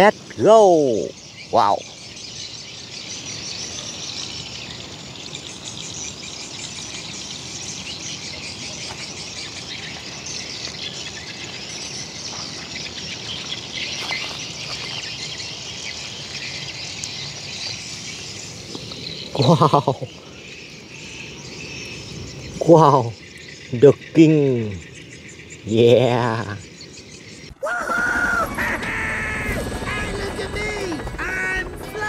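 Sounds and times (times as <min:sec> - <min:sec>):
birds chirping: 0:00.0 - 0:32.0
insects chirping: 0:00.0 - 0:32.0
low background hum: 0:27.0 - 0:32.0.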